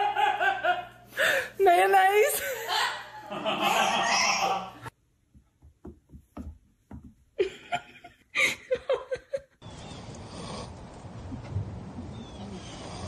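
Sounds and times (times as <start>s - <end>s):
person laughing: 2.4s - 4.9s, 7.4s - 9.6s.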